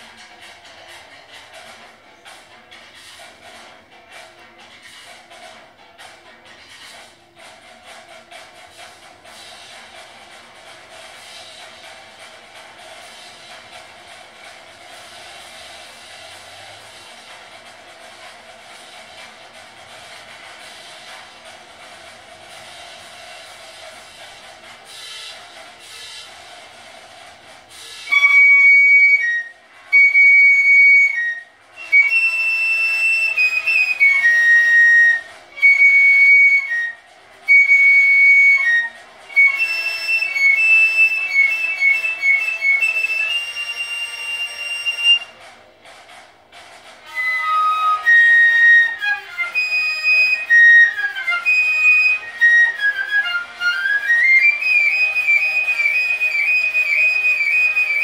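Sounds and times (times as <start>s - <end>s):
piccolo melody: 27.7s - 45.6s, 47.0s - 58.0s.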